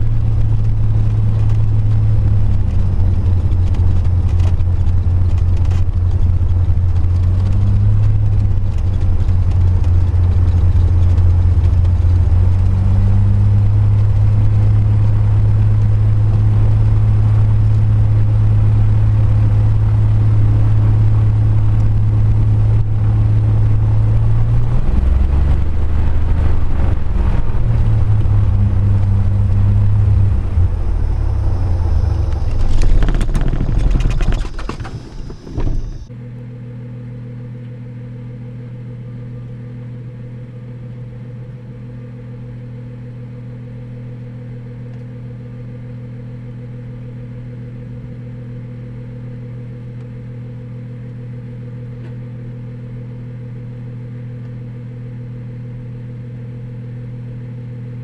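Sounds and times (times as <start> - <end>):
propeller engine idling and sputtering: 0.0 - 58.0
steady low hum: 0.0 - 58.0.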